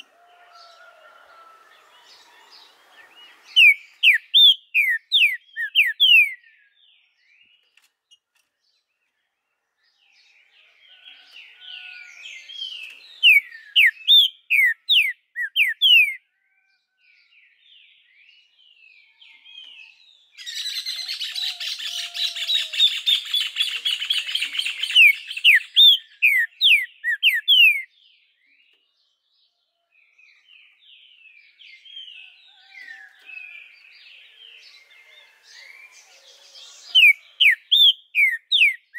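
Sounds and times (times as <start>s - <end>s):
bird whistled song: 3.3s - 7.1s, 12.6s - 16.2s, 20.4s - 28.0s, 35.6s - 38.9s.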